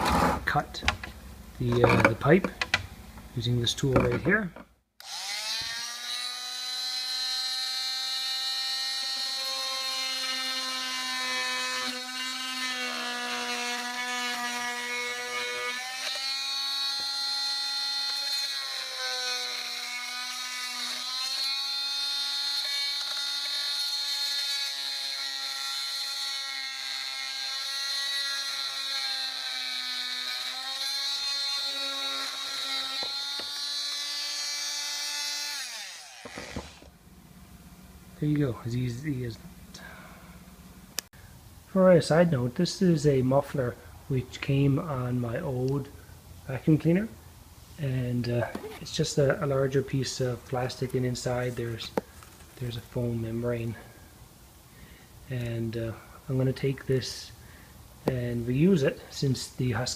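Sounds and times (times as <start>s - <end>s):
oscillating multi-tool cutting plastic pipe: 5.0s - 36.9s.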